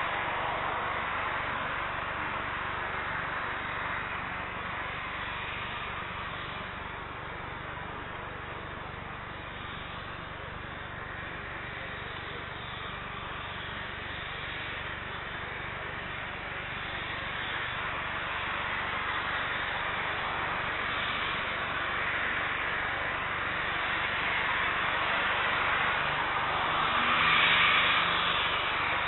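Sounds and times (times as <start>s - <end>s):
jet engines running: 0.0s - 29.0s.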